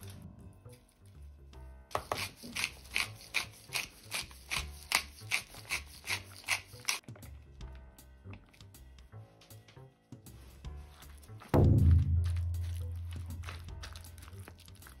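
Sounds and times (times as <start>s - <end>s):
soft background music: 0.0s - 15.0s
pepper mill grinding: 1.9s - 7.1s.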